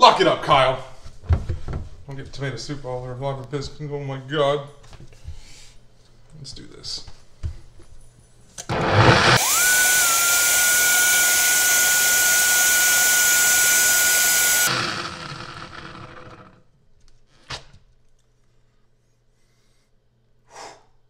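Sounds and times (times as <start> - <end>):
blender whining: 8.7 - 16.6.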